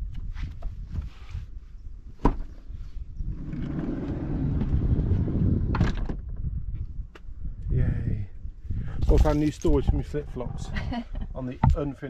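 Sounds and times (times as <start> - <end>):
sliding door rolling on runner: 3.2 - 6.2.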